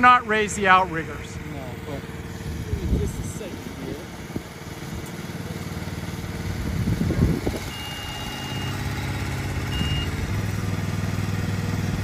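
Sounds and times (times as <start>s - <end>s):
engine running steadily: 0.0s - 12.0s
short high beeps: 7.7s - 9.0s, 9.7s - 10.2s.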